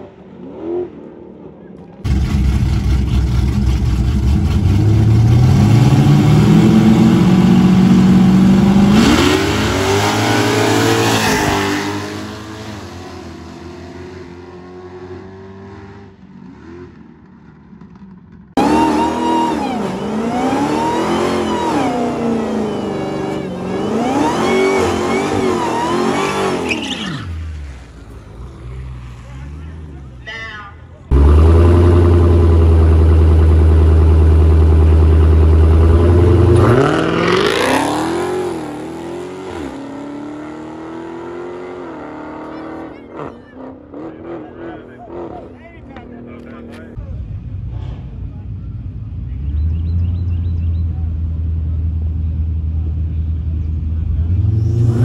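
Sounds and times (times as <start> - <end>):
cars launching on drag strip: 0.0 - 55.0
car engine revving in burnout: 2.0 - 16.9, 18.6 - 27.3, 31.1 - 45.6.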